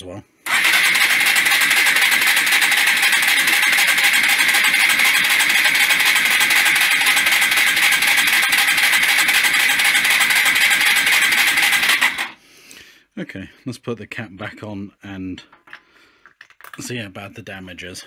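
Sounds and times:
engine cranking without firing: 0.4s - 12.4s.

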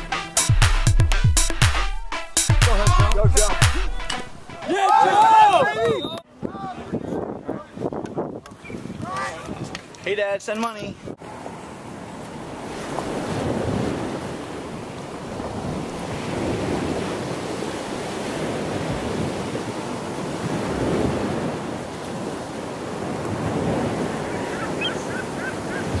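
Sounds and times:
wind buffeting microphone: 4.7s - 10.0s, 10.8s - 26.0s
choppy water sloshing: 11.3s - 26.0s.

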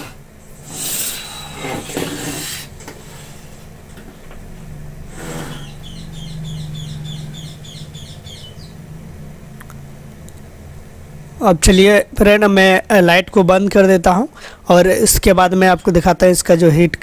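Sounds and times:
small bird chirping: 5.4s - 8.8s.

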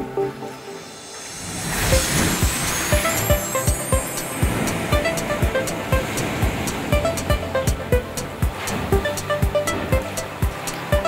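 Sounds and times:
short melodic notes: 0.0s - 8.1s
steady drum beat: 1.9s - 11.0s.

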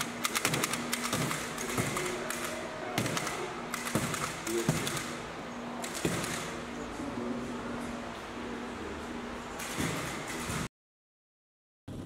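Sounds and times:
hand tools tapping and clicking: 0.0s - 5.1s
steady hum: 0.0s - 10.7s.

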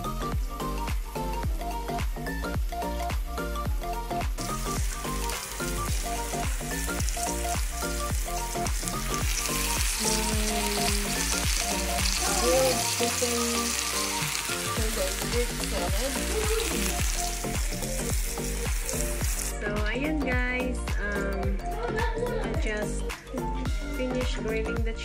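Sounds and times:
background music with steady beat: 0.0s - 25.0s
food sizzling in hot oil: 4.2s - 19.6s.

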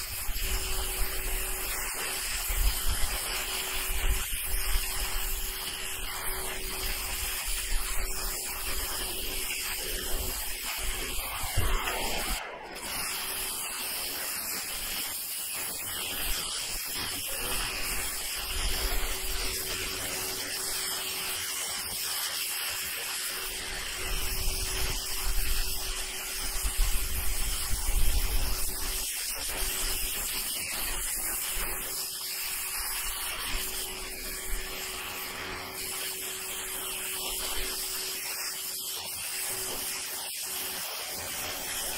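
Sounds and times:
pressure washer jet hissing: 0.0s - 41.9s.

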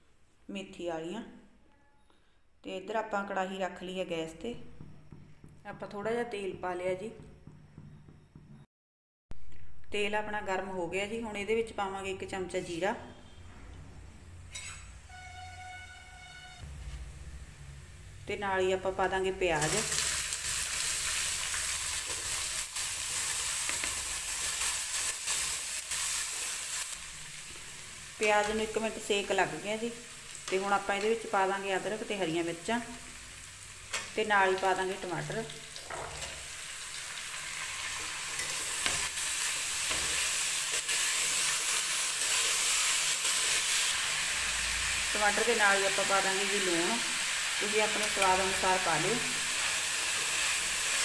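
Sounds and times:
onion sizzling in hot oil: 18.0s - 51.0s.

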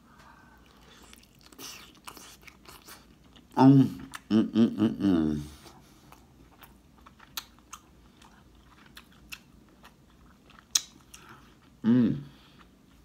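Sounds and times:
chewing: 0.6s - 4.3s, 5.5s - 11.8s.

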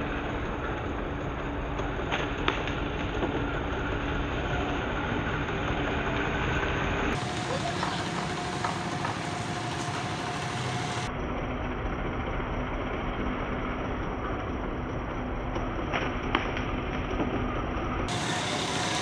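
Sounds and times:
road traffic rumble: 0.0s - 11.2s, 17.5s - 19.0s.

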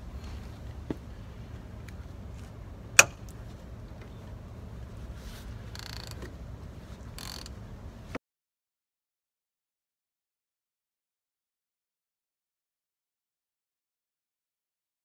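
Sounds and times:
ratchet wrench clicking: 7.2s - 7.6s.

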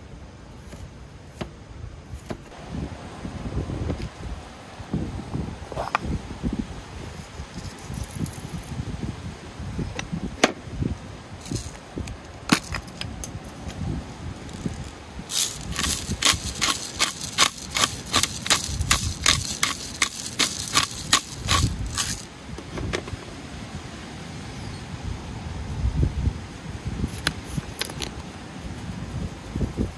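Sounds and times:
pepper grinder clicking: 14.5s - 22.3s.

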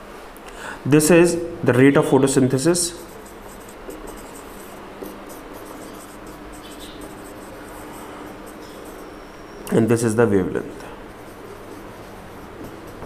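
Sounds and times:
marker pen scratching on whiteboard: 2.6s - 9.3s, 11.1s - 13.0s.

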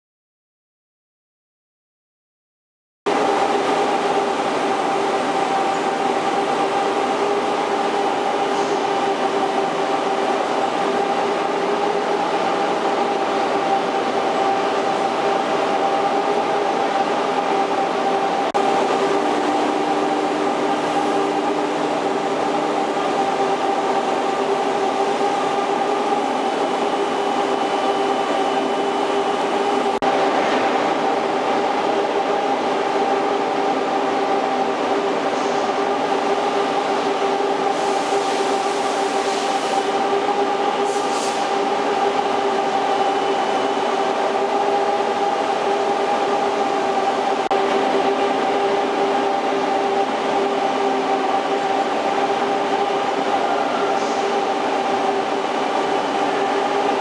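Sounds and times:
low machine tone: 3.1s - 33.8s
lathe machine hum: 3.1s - 57.0s.

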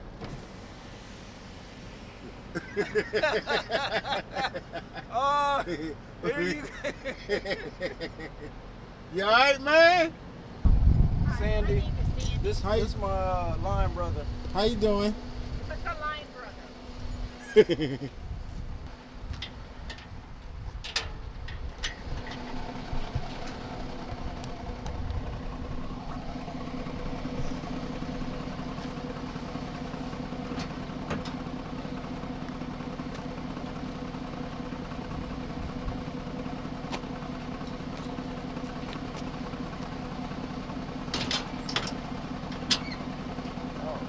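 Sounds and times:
vehicle engine idling: 0.0s - 44.0s.

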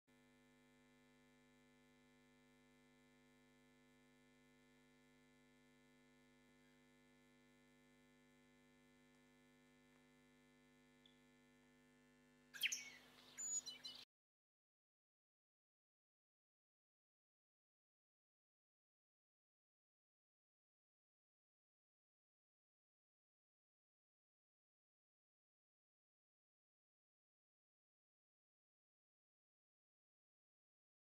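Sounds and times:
high chirping: 12.6s - 14.0s.

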